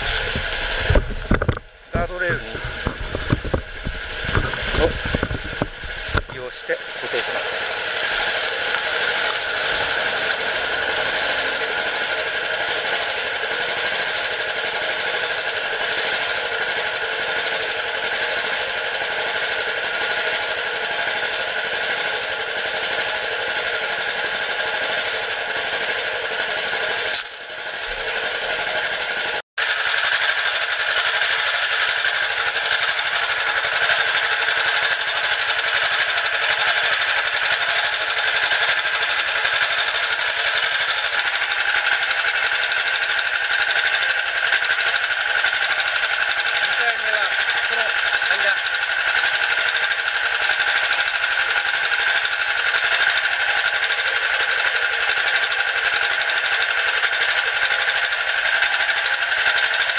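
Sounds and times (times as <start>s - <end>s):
small winch engine idling: 0.0s - 59.9s.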